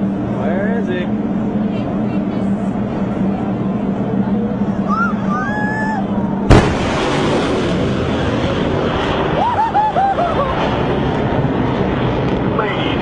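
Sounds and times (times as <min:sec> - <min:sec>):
fighter jet passing: 0:00.0 - 0:13.0
people crying out: 0:04.9 - 0:06.1.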